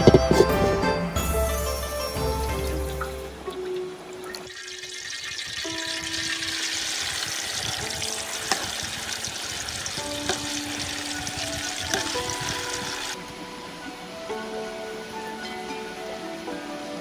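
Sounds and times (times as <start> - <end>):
background music: 0.0 - 17.0
tripe sizzling in hot oil: 3.5 - 13.2
stirring knocks: 3.6 - 13.2.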